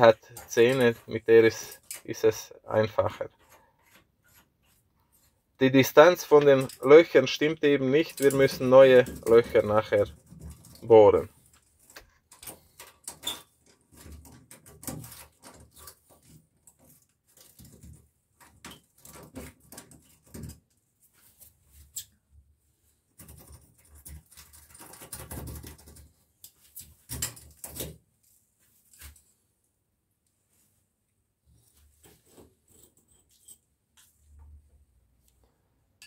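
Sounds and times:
pliers scraping metal bolt: 0.2s - 2.2s, 8.0s - 9.7s.

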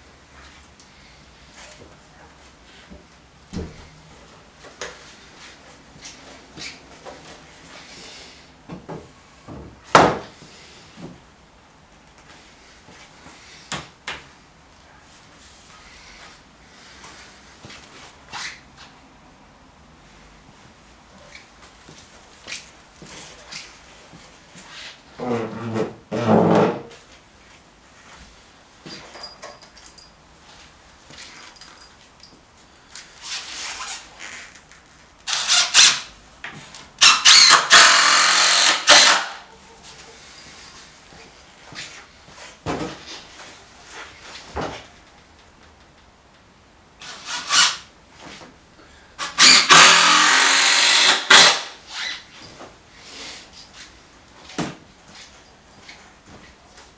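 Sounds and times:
cordless drill driving screws: 35.3s - 36.1s, 37.0s - 39.4s, 47.0s - 47.8s, 49.2s - 51.8s.

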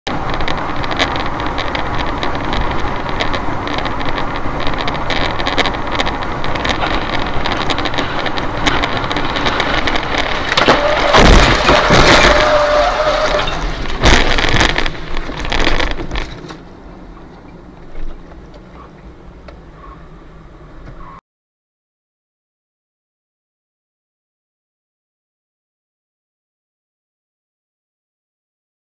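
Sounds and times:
car road and engine noise: 0.1s - 21.2s
debris banging on car: 6.6s - 16.6s.

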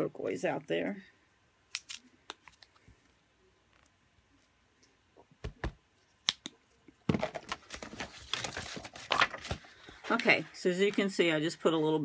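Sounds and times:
paper crinkling: 7.2s - 11.1s.

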